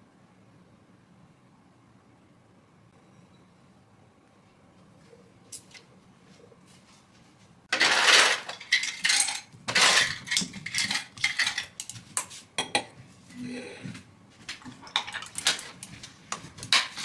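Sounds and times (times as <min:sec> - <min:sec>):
ice cubes clinking in glasses: 0:07.7 - 0:11.8.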